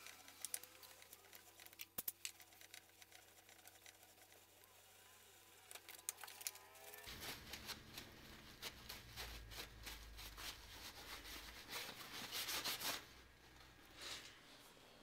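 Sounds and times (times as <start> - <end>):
paper towel rustling and rubbing: 7.0 - 14.4.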